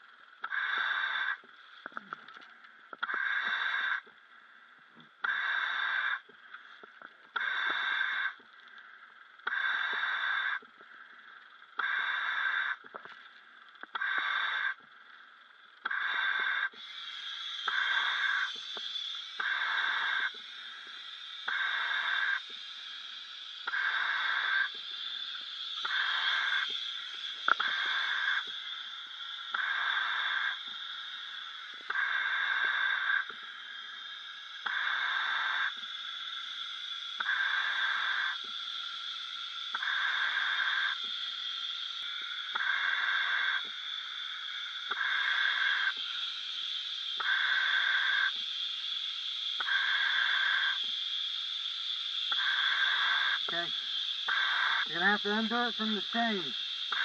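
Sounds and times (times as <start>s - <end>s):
steady hiss of air: 0.0s - 57.0s
diver breathing through regulator: 5.3s - 6.3s, 7.4s - 8.4s, 9.4s - 10.6s, 11.8s - 12.8s, 15.8s - 23.0s, 23.6s - 36.6s, 37.2s - 38.6s, 47.2s - 48.4s.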